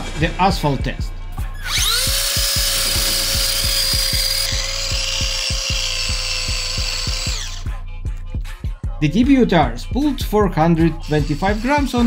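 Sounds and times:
background music beat: 0:00.0 - 0:12.0
electric motor whining: 0:01.6 - 0:07.8, 0:11.0 - 0:12.0.

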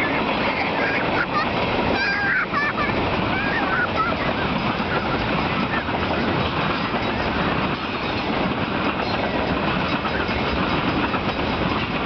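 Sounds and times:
steel wheels running on rails: 0:00.0 - 0:12.0.

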